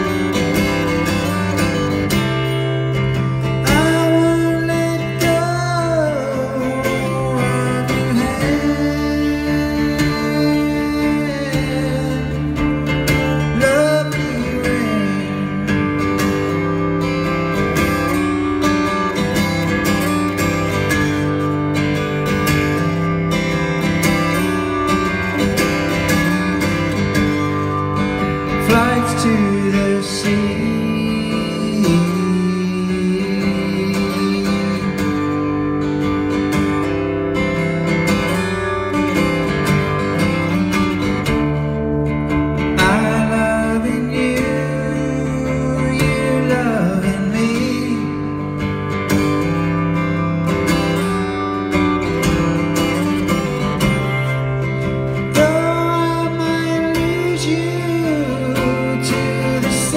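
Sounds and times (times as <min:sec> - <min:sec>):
acoustic guitar: 0:00.0 - 0:59.9
man singing: 0:03.5 - 0:16.4, 0:28.5 - 0:35.6, 0:42.7 - 0:48.6, 0:55.2 - 0:59.9.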